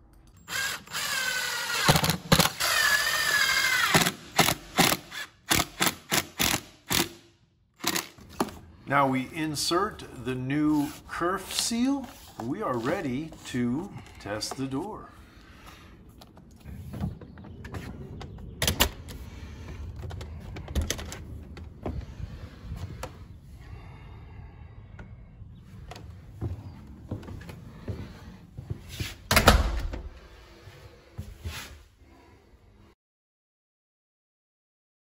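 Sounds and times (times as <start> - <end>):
door thudding shut: 29.3 - 30.1.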